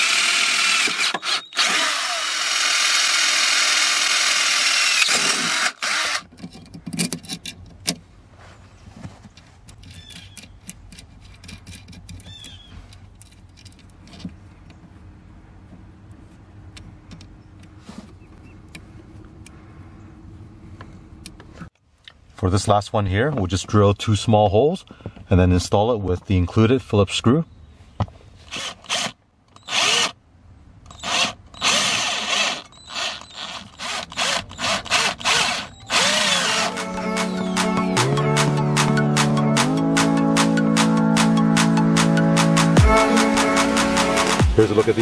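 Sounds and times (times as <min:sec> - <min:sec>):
cordless drill boring metal: 0:00.0 - 0:06.3, 0:28.5 - 0:30.2, 0:30.9 - 0:37.3.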